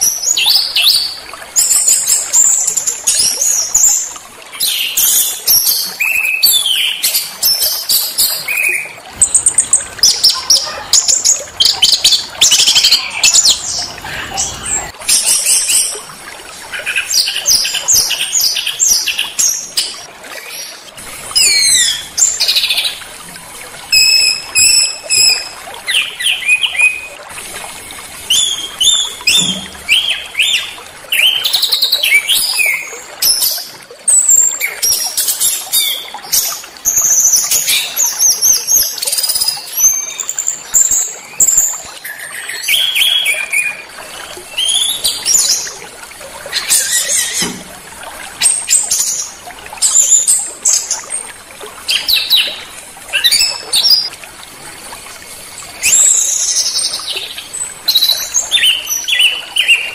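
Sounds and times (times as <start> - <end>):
songbird singing: 23.9 - 27.2.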